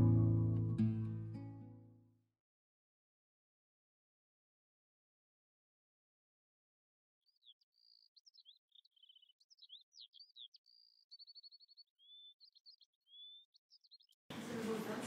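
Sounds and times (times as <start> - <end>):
songbird singing: 7.3 - 14.8.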